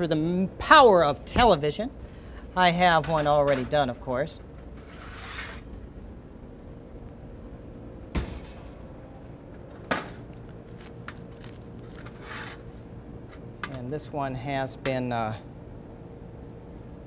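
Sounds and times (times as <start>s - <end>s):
steady low hum: 0.0s - 17.0s
plastic wrap crinkling: 10.6s - 12.2s.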